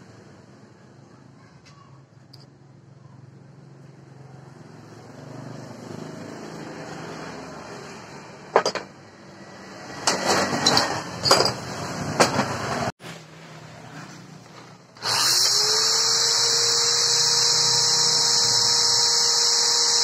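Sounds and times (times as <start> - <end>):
steel parts clattering on workbench: 10.0 - 12.5.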